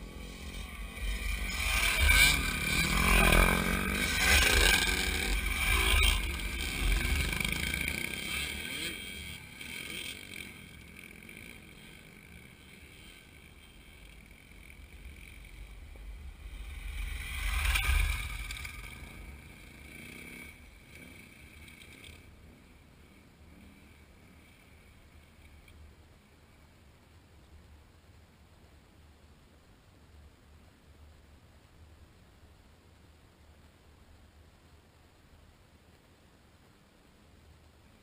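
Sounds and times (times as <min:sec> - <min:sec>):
dirt bikes passing by: 0:00.0 - 0:26.9.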